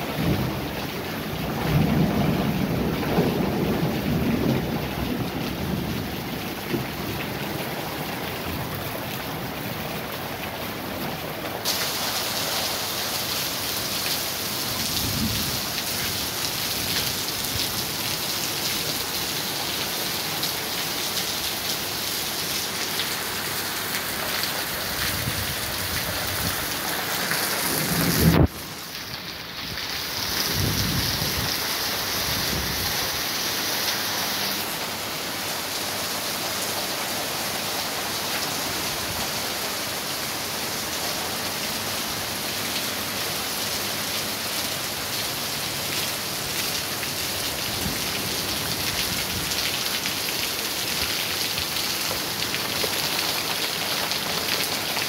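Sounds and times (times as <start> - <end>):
heavy rain pouring on street: 0.0 - 55.0
low rumbling thunder: 1.4 - 7.3, 14.8 - 15.8, 27.7 - 28.6, 30.4 - 31.5
loud thunderclap: 27.8 - 28.5.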